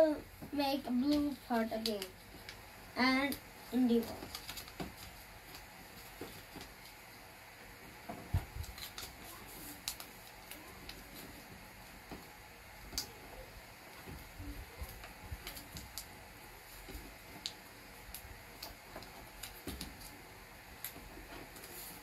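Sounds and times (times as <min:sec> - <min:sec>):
paper crinkling and creasing: 0:03.7 - 0:07.0, 0:08.2 - 0:11.5.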